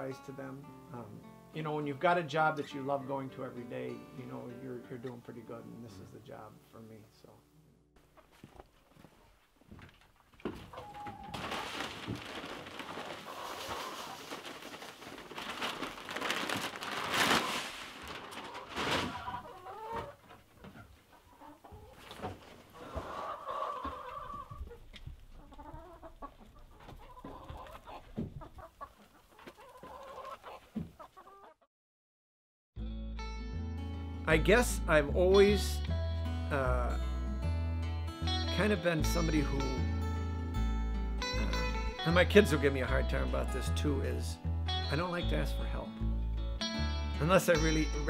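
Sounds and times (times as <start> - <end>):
noisy scuffling: 8.0 - 21.0
chickens clucking and calling: 10.6 - 15.1, 18.3 - 31.7.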